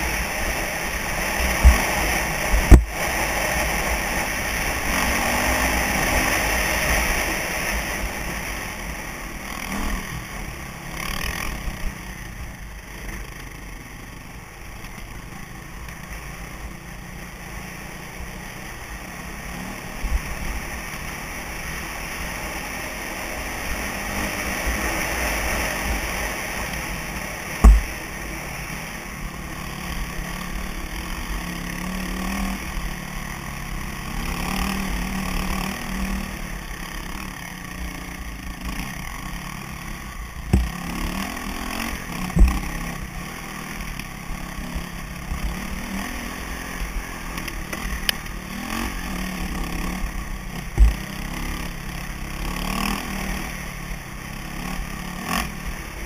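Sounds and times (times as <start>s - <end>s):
dirt bike engine running: 0.0s - 56.0s
knocks: 27.6s - 27.9s.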